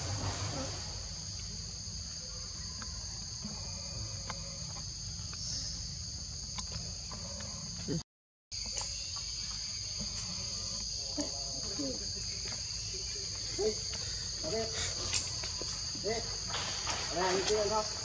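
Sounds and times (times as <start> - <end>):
insects chorus: 0.0 - 18.0.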